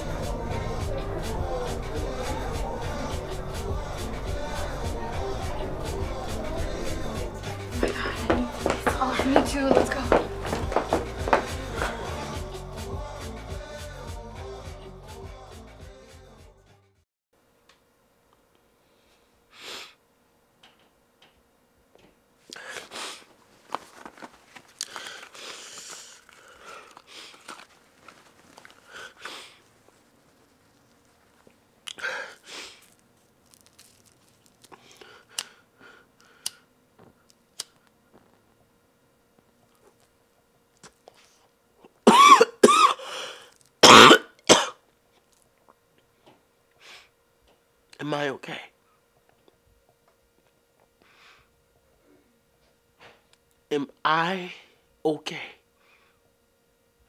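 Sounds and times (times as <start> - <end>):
man sniffing and breathing: 22.5 - 23.3, 24.8 - 27.6, 28.7 - 29.8, 31.9 - 33.0, 43.0 - 43.6
clothing rustling: 23.4 - 26.4, 27.2 - 31.6
man coughing hard: 42.0 - 43.2, 43.8 - 44.8.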